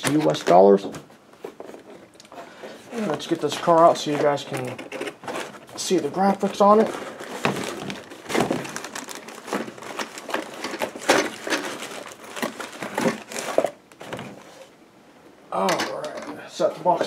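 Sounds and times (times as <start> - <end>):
cardboard packaging rustling: 1.4 - 14.7.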